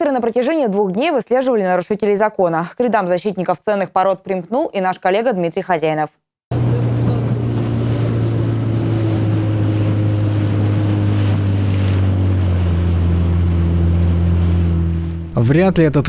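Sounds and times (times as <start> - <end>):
outboard motor running: 6.5 - 15.5
wind: 6.5 - 15.5
water noise: 6.5 - 15.6.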